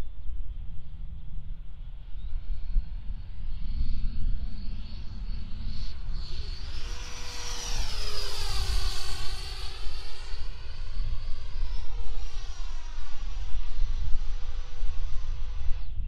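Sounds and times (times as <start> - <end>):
model jet fan whining: 2.6 - 16.0.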